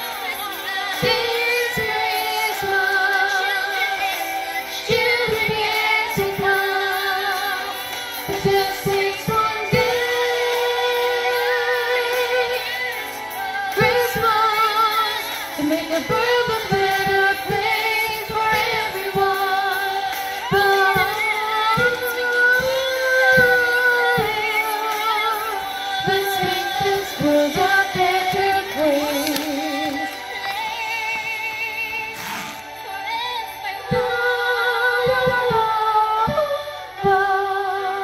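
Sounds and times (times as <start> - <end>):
woman singing with vibrato: 0.0 - 38.0.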